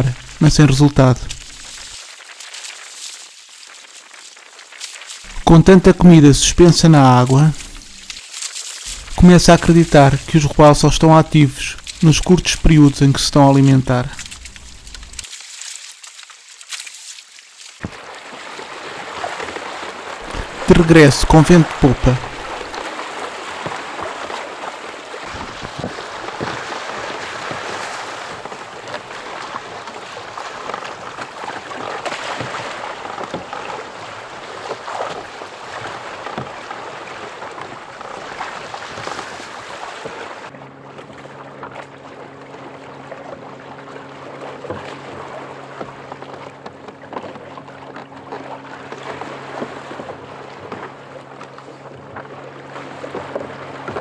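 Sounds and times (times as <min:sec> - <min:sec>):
waves splashing against kayak hull: 0:00.0 - 0:54.0
steady low hum: 0:08.9 - 0:15.2.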